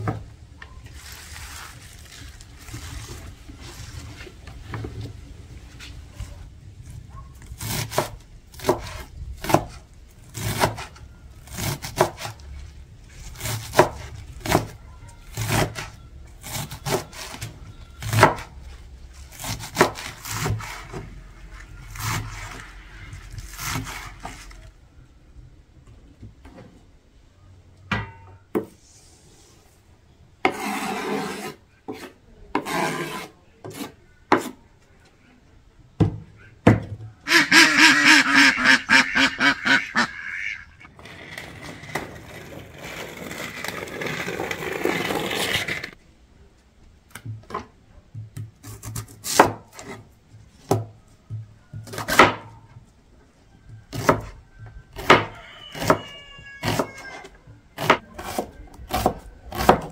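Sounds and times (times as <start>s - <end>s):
short scraping sounds: 30.4s - 34.6s.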